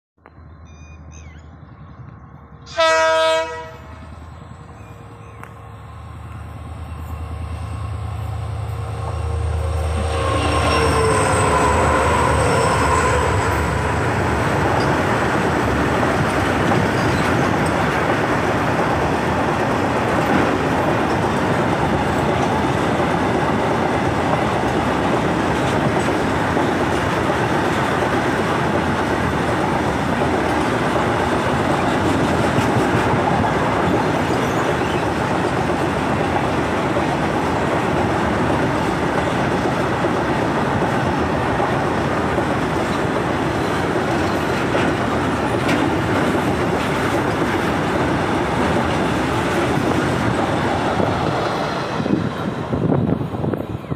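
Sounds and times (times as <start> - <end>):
diesel locomotives rumbling past: 0.4 - 53.9
train wheels clickety-clack on rails: 8.6 - 53.9.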